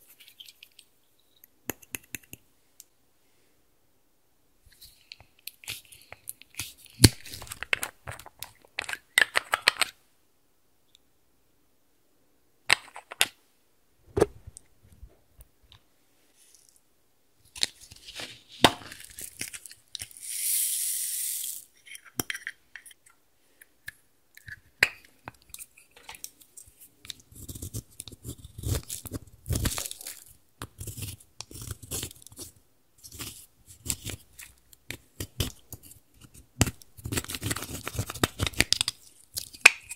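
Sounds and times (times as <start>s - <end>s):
foam beads pouring hiss: 20.1s - 21.7s
eyeshadow scraped and crackling: 25.5s - 39.9s.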